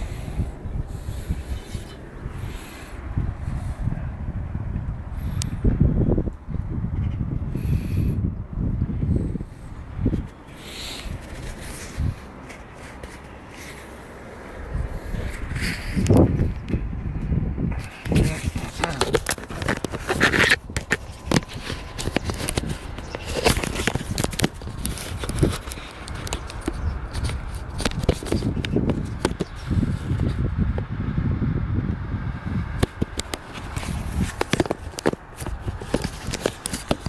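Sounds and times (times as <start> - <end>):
low rumbling: 0.0 - 25.9
phone microphone handling noise: 9.1 - 13.9, 14.6 - 30.9, 32.4 - 37.0.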